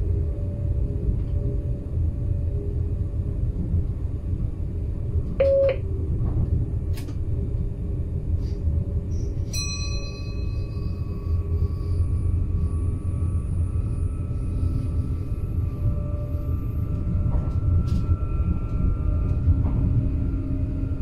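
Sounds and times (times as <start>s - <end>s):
train low rumble: 0.0s - 21.0s
short beep: 5.4s - 5.8s.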